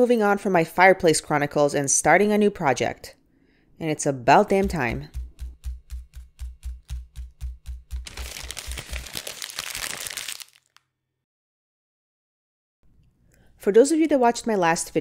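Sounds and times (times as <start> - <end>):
low thumps with sharp clicks: 4.6 - 8.1
paper crinkling: 8.0 - 10.8.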